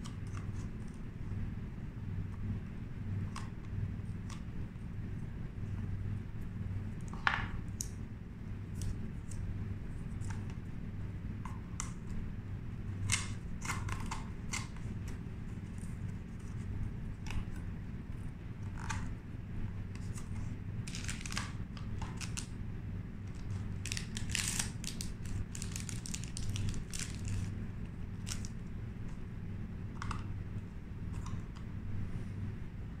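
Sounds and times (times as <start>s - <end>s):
steady low hum: 0.0s - 33.0s
stiff card rustling and crinkling: 19.9s - 22.6s, 23.2s - 29.2s.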